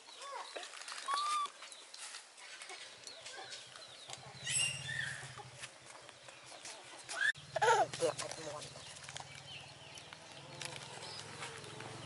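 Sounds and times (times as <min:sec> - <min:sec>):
baby macaque squealing: 0:01.1 - 0:01.5.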